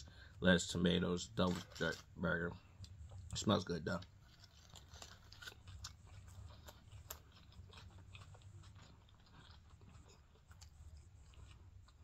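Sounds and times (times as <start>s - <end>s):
man chewing with wet smacks: 2.7s - 12.0s.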